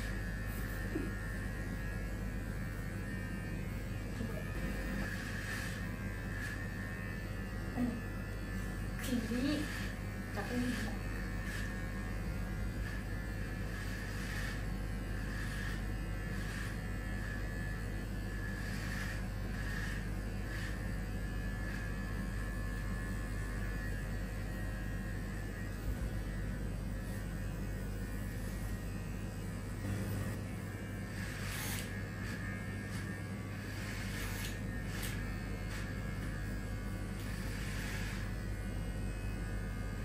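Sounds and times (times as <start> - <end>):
hair cutting swish: 0.0 - 8.1, 8.7 - 40.0
electric hair clippers buzzing: 0.0 - 40.0.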